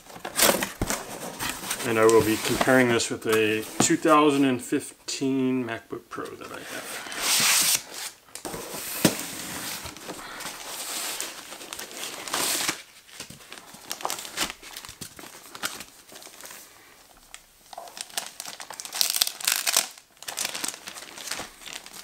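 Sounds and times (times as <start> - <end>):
plastic wrapping crinkling: 9.7 - 22.0.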